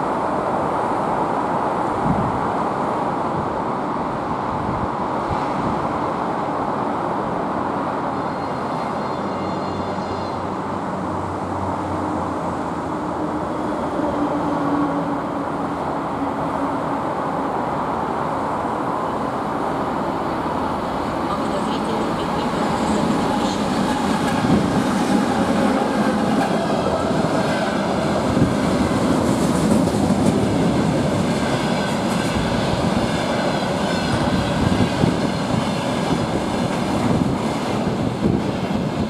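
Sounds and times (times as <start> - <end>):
train wheels rumbling on rails: 20.8 - 39.0.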